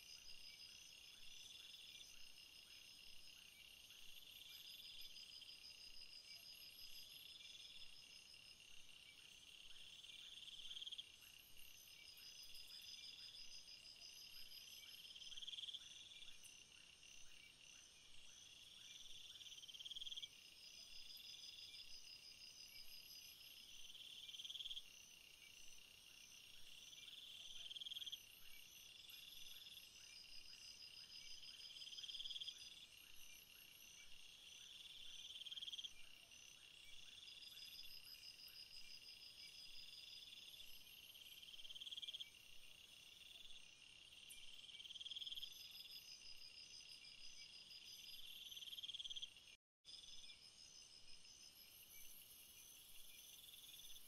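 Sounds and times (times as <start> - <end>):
insects pulsing calls: 6.4 - 49.4
insects trilling: 26.8 - 54.0.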